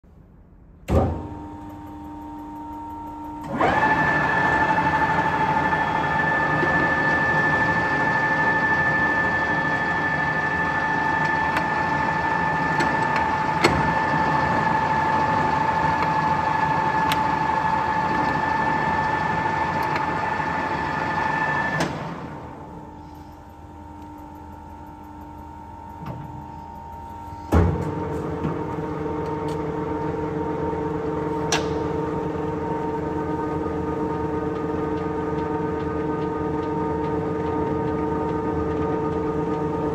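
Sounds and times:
lathe running with gear whine: 0:02.0 - 0:22.8, 0:32.0 - 0:39.9
motor switch clunk: 0:31.4 - 0:32.0.

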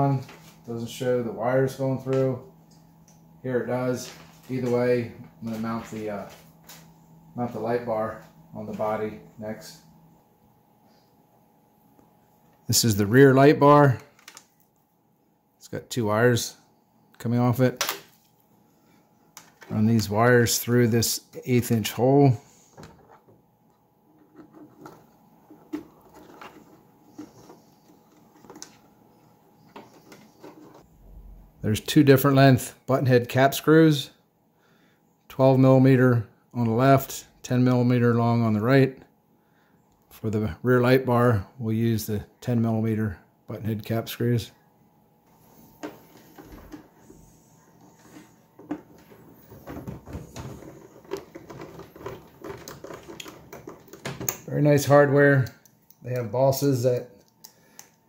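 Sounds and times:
tool scraping plastic: 0:24.1 - 0:28.9, 0:29.7 - 0:30.9, 0:47.8 - 0:54.3.

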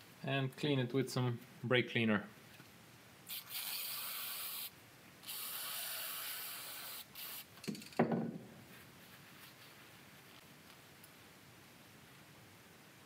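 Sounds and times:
aerosol spray hissing: 0:03.3 - 0:07.5
handling knocks: 0:07.7 - 0:08.5.

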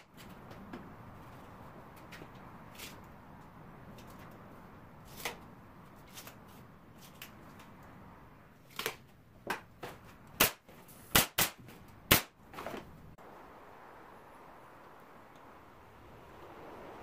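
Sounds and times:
nail gun firing into wood: 0:10.4 - 0:12.3.

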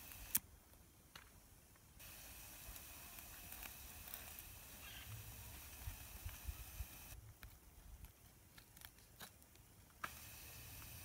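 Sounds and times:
steady hiss: 0:00.0 - 0:07.2, 0:09.6 - 0:11.0
faint crackles and ticks: 0:00.0 - 0:11.0.

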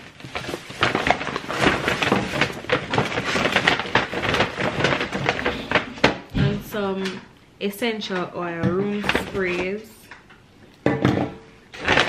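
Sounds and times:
paper bag rustling and crinkling: 0:00.0 - 0:06.9, 0:08.9 - 0:09.9, 0:11.8 - 0:12.0.

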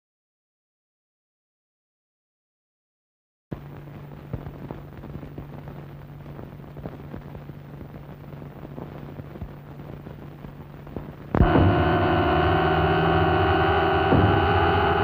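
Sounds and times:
crackles and pops: 0:03.5 - 0:11.5
low hum: 0:03.5 - 0:15.0
film hiss: 0:03.6 - 0:11.4.

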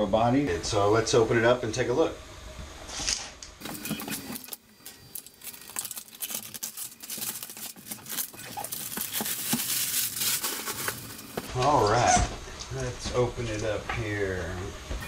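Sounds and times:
plastic wrapping crackling: 0:03.6 - 0:11.7.

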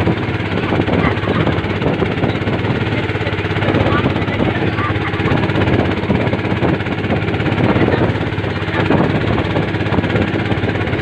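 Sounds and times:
boat engine running: 0:00.0 - 0:11.0
water splashing along hull: 0:00.0 - 0:11.0.

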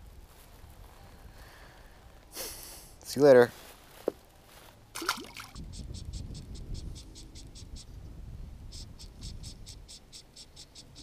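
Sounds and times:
fish splashing into water: 0:05.0 - 0:05.6.

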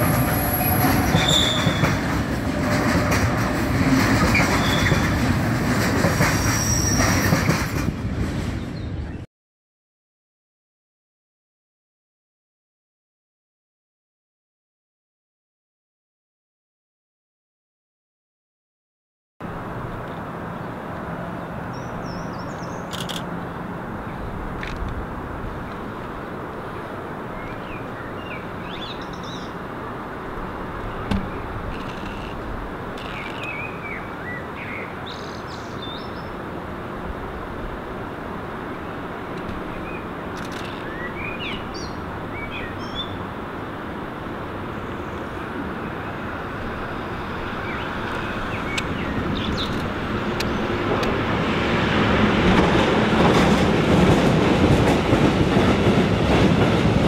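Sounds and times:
freight train rumble: 0:00.0 - 0:09.2, 0:19.4 - 0:57.0
birds chirping: 0:39.7 - 0:43.2, 0:47.5 - 0:50.7.

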